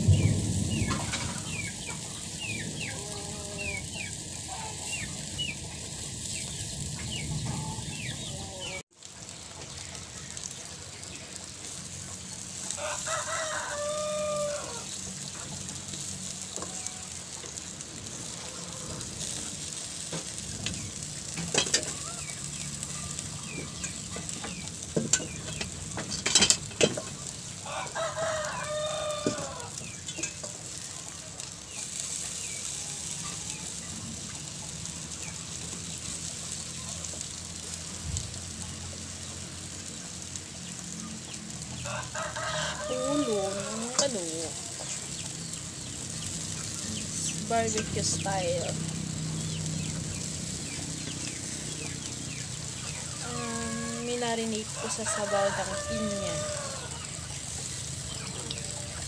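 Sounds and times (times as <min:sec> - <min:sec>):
squid sizzling on a grill: 0:00.0 - 0:59.0
rooster crowing: 0:12.6 - 0:15.0, 0:18.2 - 0:19.4, 0:27.6 - 0:29.9, 0:41.8 - 0:44.8, 0:53.0 - 0:57.3.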